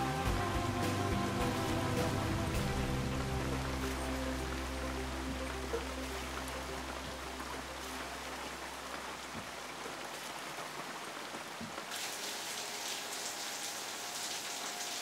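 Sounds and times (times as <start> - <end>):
rain falling on puddles: 0.0 - 15.0.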